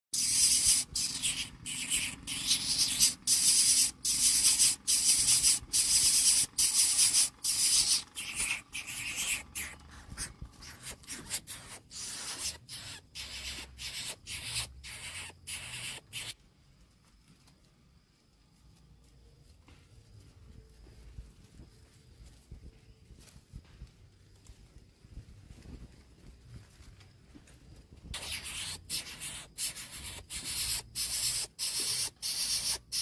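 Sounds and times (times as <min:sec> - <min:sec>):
nestling bird begging calls: 0:00.2 - 0:16.4, 0:28.2 - 0:33.0.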